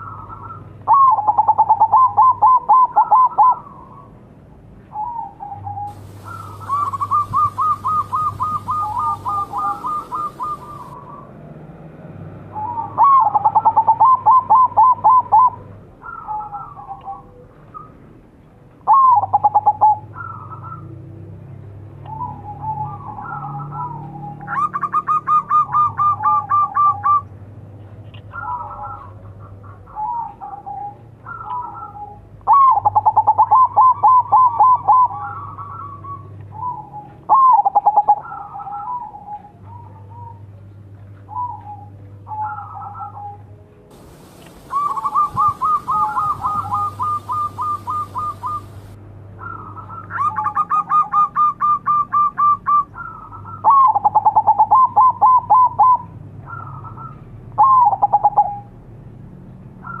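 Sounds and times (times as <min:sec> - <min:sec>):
dove cooing: 0:00.0 - 0:04.1, 0:04.9 - 0:11.3, 0:12.5 - 0:17.9, 0:18.9 - 0:20.8, 0:22.1 - 0:27.2, 0:28.2 - 0:40.4, 0:41.3 - 0:58.7.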